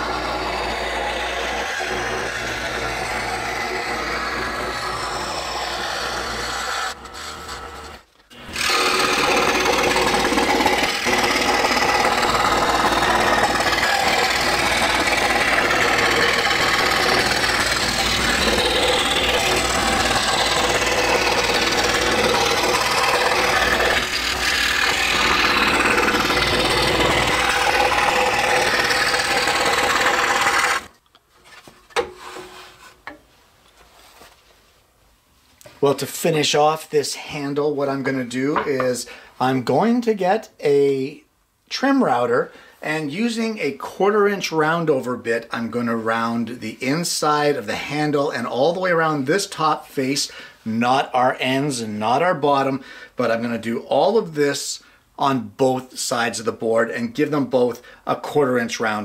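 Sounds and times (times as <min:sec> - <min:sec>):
scroll saw cutting wood: 0:00.0 - 0:31.0.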